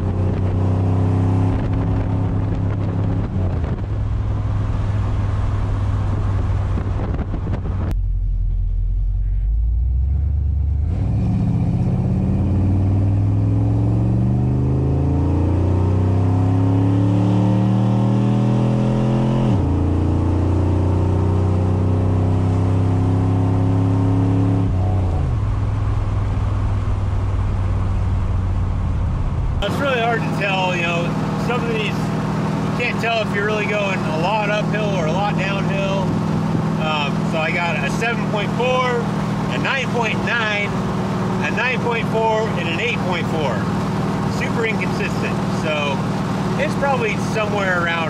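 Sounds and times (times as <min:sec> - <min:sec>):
car engine accelerating: 0:00.0 - 0:48.0.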